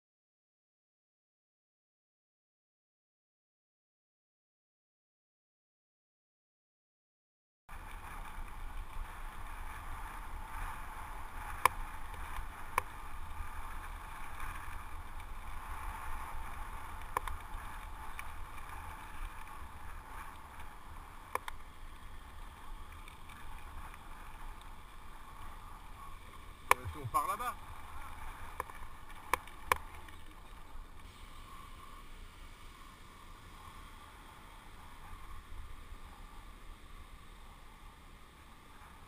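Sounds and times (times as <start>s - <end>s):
bike tyres rolling on gravel: 7.7s - 39.0s
bike clicks: 11.4s - 21.7s.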